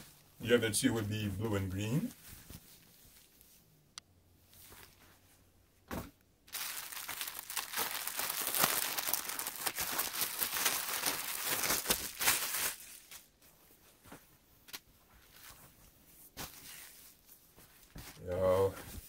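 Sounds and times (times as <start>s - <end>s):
plastic bag crinkling: 6.5s - 13.4s.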